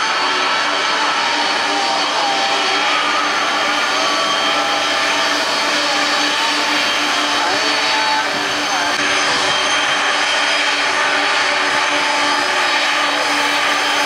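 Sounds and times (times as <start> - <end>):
jet engines roaring with whine: 0.0 - 14.0.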